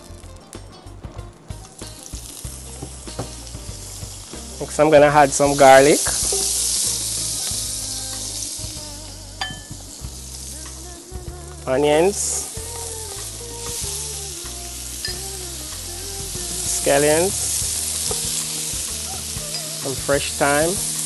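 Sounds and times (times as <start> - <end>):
garlic sizzling in a frying pan: 0.0 - 21.0
spatula stirring in pan: 2.2 - 8.9.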